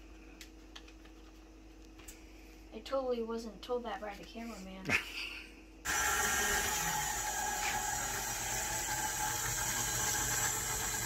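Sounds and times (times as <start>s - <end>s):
stand mixer motor running: 5.9s - 11.0s.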